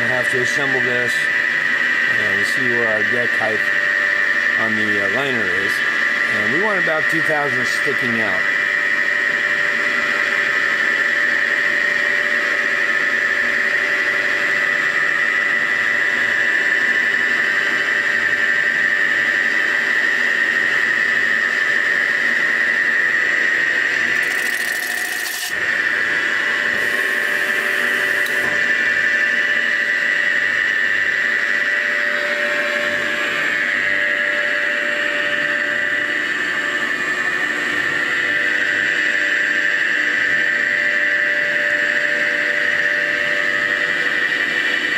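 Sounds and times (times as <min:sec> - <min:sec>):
boring bar cutting metal squeal: 0:24.1 - 0:25.7, 0:26.7 - 0:28.5.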